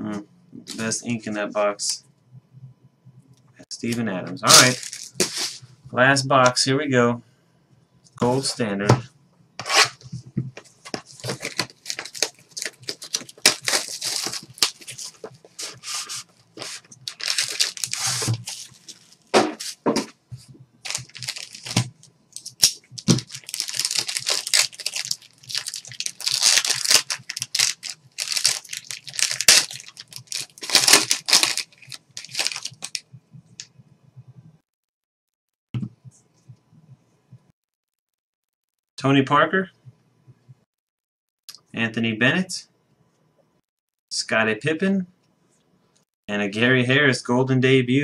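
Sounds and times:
plastic wrapping ripping and crinkling: 4.5s - 5.6s, 11.1s - 19.3s, 20.8s - 33.0s.

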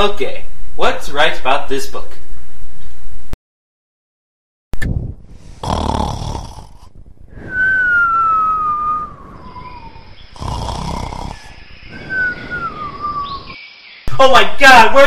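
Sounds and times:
cartoon snoring with whistle: 5.5s - 13.6s.

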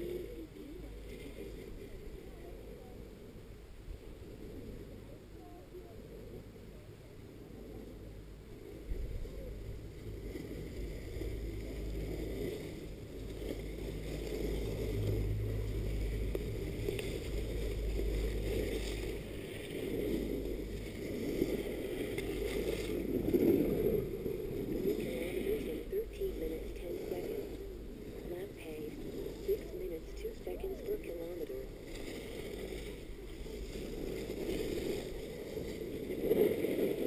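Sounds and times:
chairlift rumble: 4.5s - 37.0s
wind buffeting microphone: 7.4s - 37.0s.

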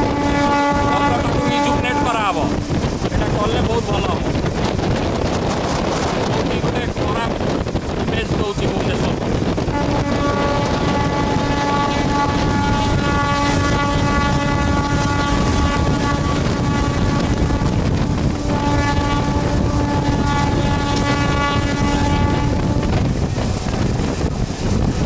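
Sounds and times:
train horn blast: 0.0s - 7.5s, 8.9s - 24.2s
moving train rumble: 0.0s - 25.0s
wind on microphone: 0.0s - 25.0s.

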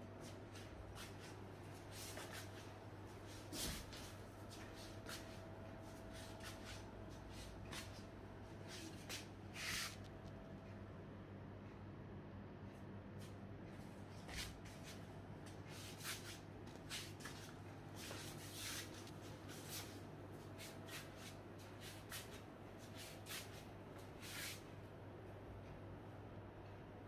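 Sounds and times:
low steady hum: 0.0s - 27.0s
soft rubbing and brushing: 0.2s - 10.1s, 14.1s - 15.1s, 15.7s - 24.7s.

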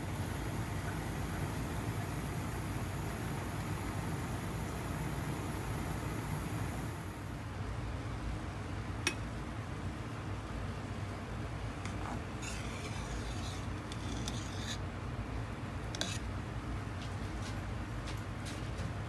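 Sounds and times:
pot boiling: 0.0s - 7.4s, 11.6s - 14.8s
metal ladle scraping a pot: 11.9s - 14.8s, 15.9s - 16.3s.

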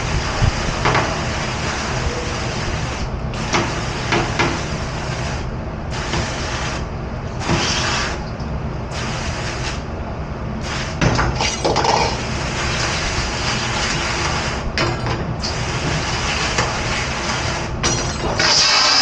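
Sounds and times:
machine rumble: 0.0s - 18.8s
hissing water spray: 18.4s - 19.0s.

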